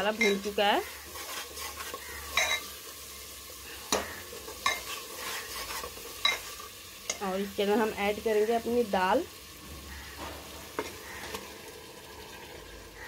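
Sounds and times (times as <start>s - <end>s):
spoon scraping a pan: 0.0s - 7.2s, 9.9s - 12.4s
masala sizzling: 0.0s - 13.0s.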